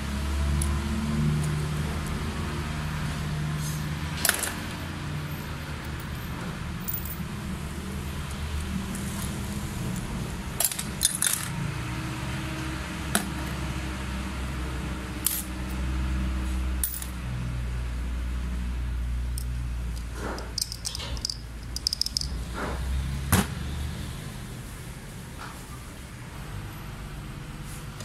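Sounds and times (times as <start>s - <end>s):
metal parts clinking on workbench: 6.8s - 7.2s, 10.6s - 11.5s, 15.2s - 15.5s, 16.8s - 17.2s, 20.4s - 22.4s.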